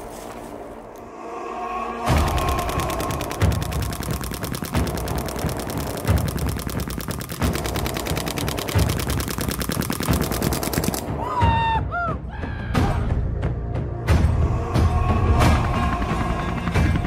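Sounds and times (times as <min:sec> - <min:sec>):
background music with steady beat: 0:02.0 - 0:17.0
paintball marker rapid firing: 0:02.1 - 0:11.2.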